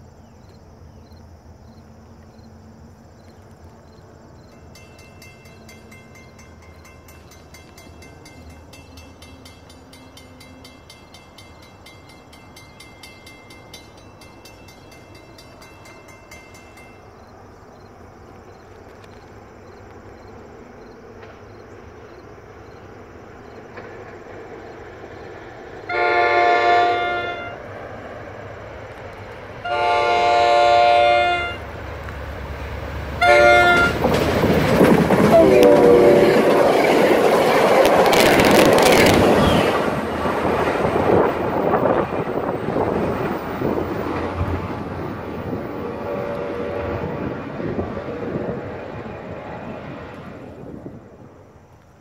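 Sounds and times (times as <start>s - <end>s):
train rumble: 0.0s - 52.0s
train horn blasts: 25.8s - 27.7s, 29.6s - 31.7s, 33.2s - 34.1s, 35.2s - 36.7s, 45.7s - 48.6s.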